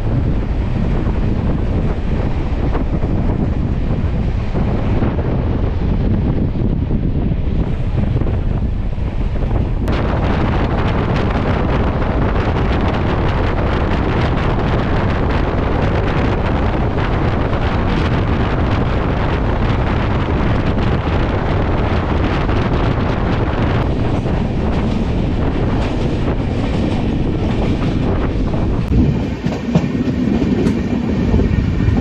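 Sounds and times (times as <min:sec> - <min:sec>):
train running noise: 0:00.0 - 0:32.0
wind buffeting microphone: 0:00.0 - 0:32.0.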